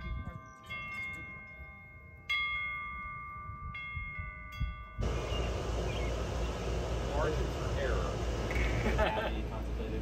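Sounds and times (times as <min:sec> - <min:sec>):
wind chimes ringing: 0:00.0 - 0:05.4.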